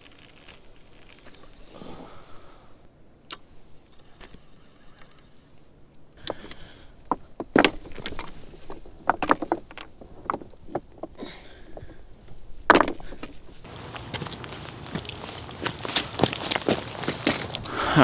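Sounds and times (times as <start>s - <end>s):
loose rocks clattering: 0.0s - 1.6s, 6.2s - 13.7s
plastic pipe knocking against rocks: 7.1s - 12.0s, 12.7s - 13.4s.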